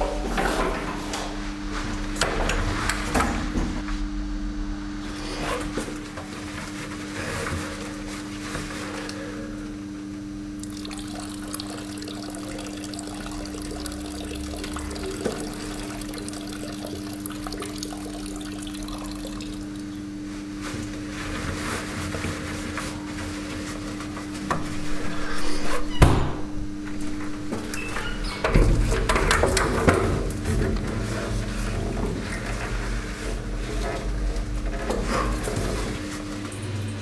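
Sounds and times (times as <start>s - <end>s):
constant low hum: 0.0s - 37.0s
water running: 10.6s - 20.9s.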